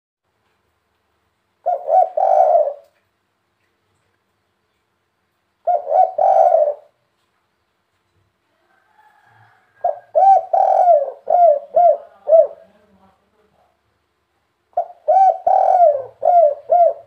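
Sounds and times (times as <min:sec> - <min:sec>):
dove cooing: 0:01.6 - 0:03.0, 0:05.6 - 0:07.0, 0:09.0 - 0:12.8, 0:14.7 - 0:17.0.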